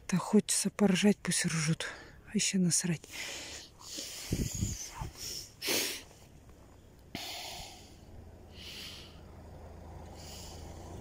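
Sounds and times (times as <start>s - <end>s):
person exhaling close to microphone: 7.1s - 9.3s.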